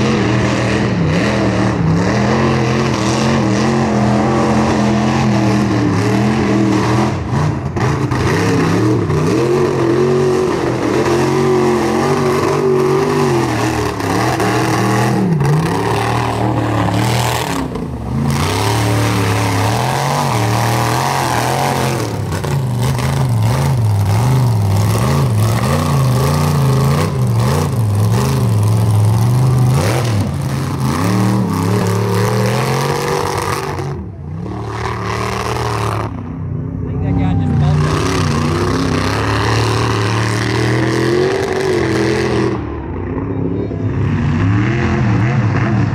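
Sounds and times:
truck engines revving: 0.0 - 45.9.

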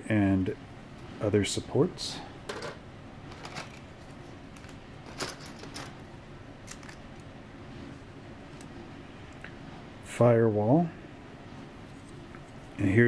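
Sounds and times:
faint room hum: 0.0 - 13.0
plastic parts clicking and rustling: 2.5 - 3.9, 4.6 - 6.0, 6.6 - 7.0.

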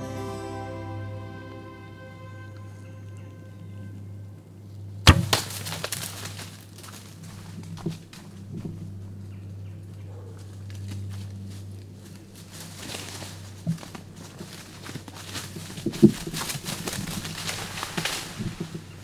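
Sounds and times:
footfalls in dry leaves: 5.1 - 8.7, 10.7 - 19.0.

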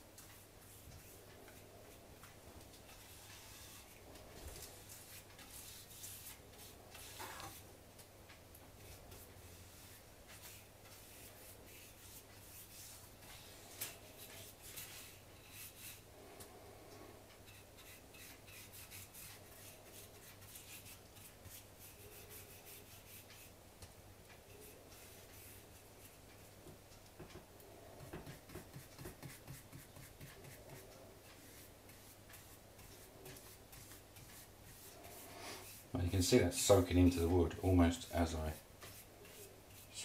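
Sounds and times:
paintbrush strokes on wood: 0.3 - 2.1, 2.8 - 7.7, 8.8 - 16.4, 17.4 - 23.6, 24.5 - 26.6, 27.9 - 40.0.

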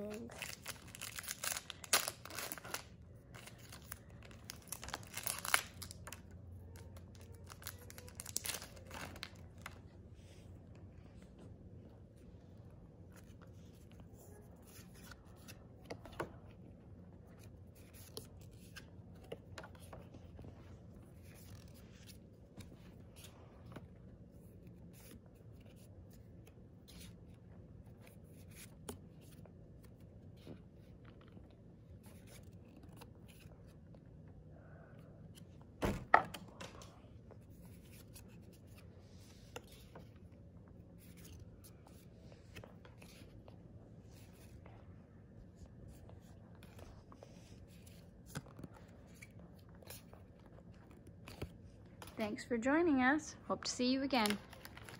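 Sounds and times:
trading cards being handled: 0.0 - 11.4, 36.2 - 43.6, 53.6 - 54.9.

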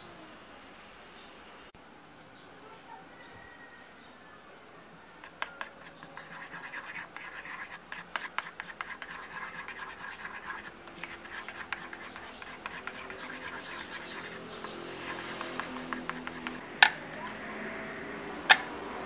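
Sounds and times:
utensil scraping a small bowl: 5.2 - 16.6.

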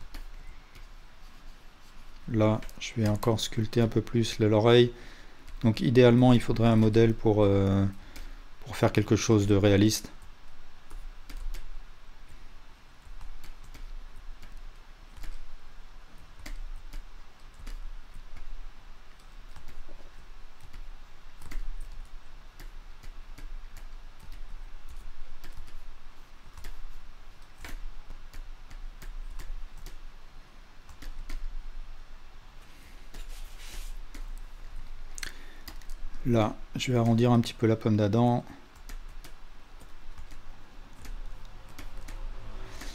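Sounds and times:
mouse and keyboard clicks: 16.4 - 18.6, 19.2 - 25.9, 26.5 - 30.0, 38.8 - 42.9.

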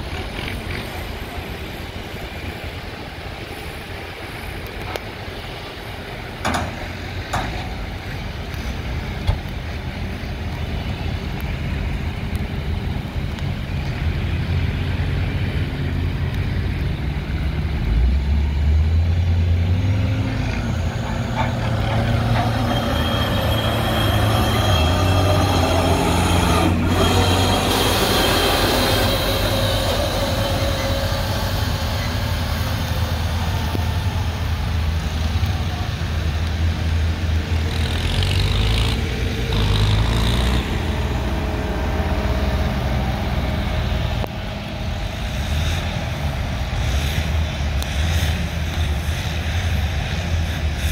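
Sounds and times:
high whine: 10.4 - 50.9.

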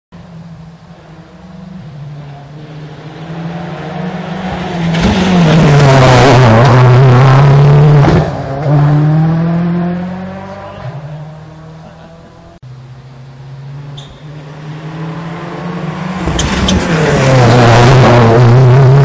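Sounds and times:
rally car engine passing: 0.2 - 19.0.

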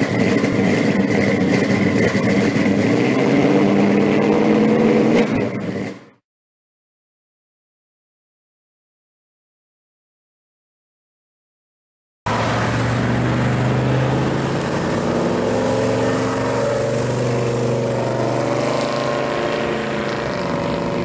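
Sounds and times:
car engine driving past: 12.3 - 21.0.

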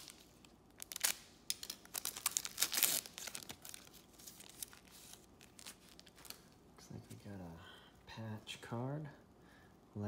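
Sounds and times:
plastic wrapper crinkling: 0.0 - 6.6.

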